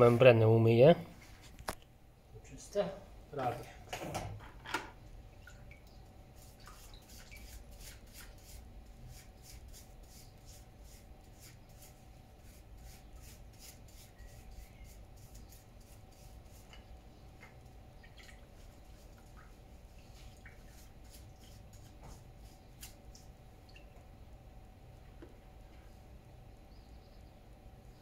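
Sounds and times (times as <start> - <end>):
low steady hum: 0.0 - 28.0
water dripping: 5.2 - 7.4, 17.4 - 21.6, 22.9 - 24.2
brush scrubbing: 6.3 - 16.9, 18.4 - 23.3.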